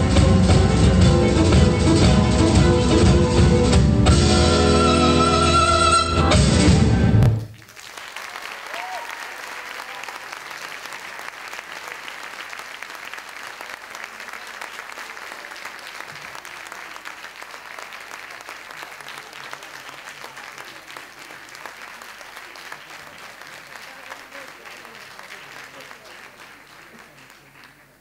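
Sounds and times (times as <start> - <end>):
audience applauding: 7.3 - 28.0.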